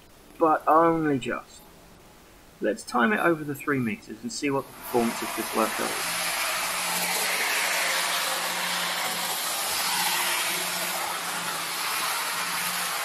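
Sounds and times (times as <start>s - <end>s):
model train motor whirring: 4.7s - 13.0s.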